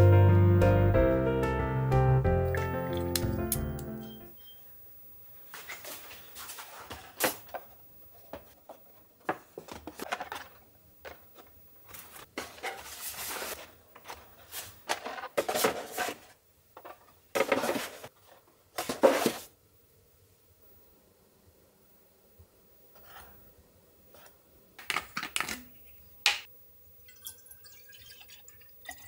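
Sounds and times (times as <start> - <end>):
cardboard boxes scraping: 12.1 - 16.4, 17.4 - 18.1, 18.8 - 19.5.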